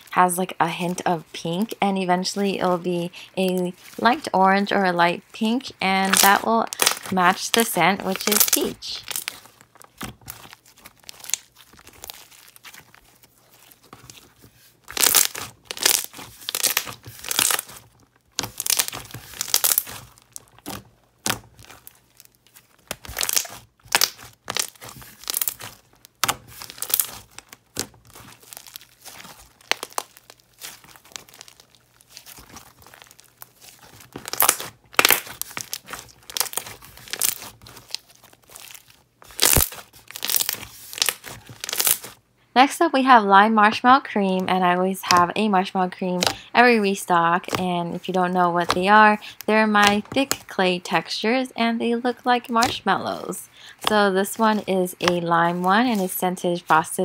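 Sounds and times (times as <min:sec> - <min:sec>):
slime crackling and tearing: 0:05.3 - 0:42.2, 0:46.1 - 0:46.5, 0:47.2 - 0:50.5, 0:52.5 - 0:56.9.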